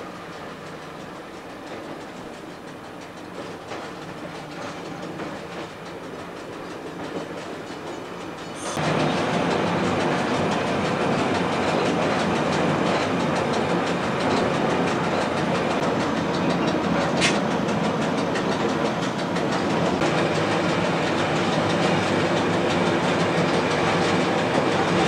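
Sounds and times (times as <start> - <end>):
rail joint clicks: 0.0 - 25.0
railcar engine and wheels rumble: 0.0 - 25.0
sharp high squeal: 8.4 - 8.8.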